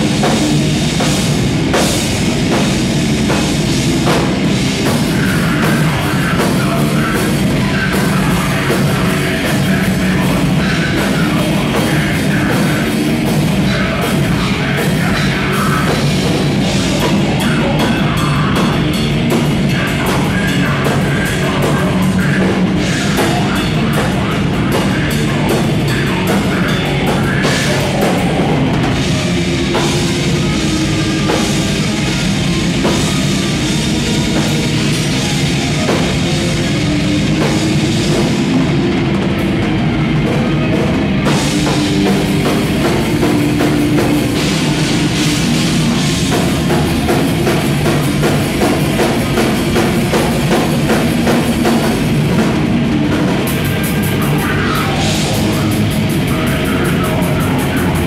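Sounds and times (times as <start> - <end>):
heavy metal band playing: 0.0 - 58.0
pounding drum kit: 0.0 - 58.0.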